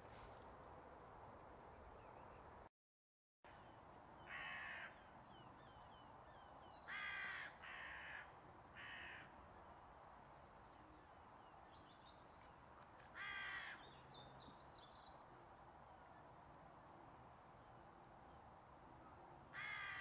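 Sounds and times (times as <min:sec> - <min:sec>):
crow cawing: 0:04.3 - 0:05.0, 0:06.9 - 0:09.3, 0:13.1 - 0:13.9, 0:19.5 - 0:20.0.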